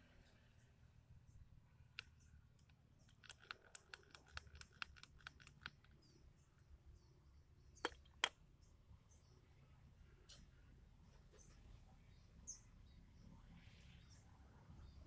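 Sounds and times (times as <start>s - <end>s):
small metallic clicks and taps: 2.0s - 6.1s.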